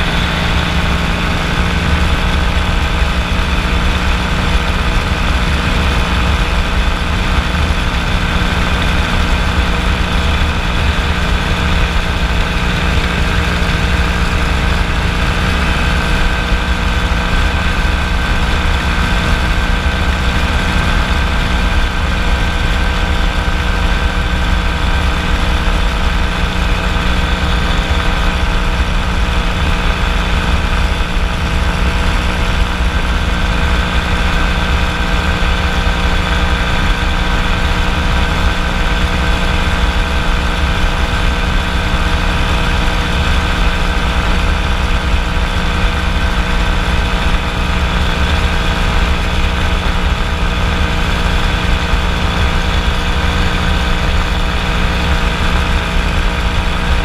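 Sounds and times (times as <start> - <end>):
ultralight aircraft engine drone: 0.0 - 57.0.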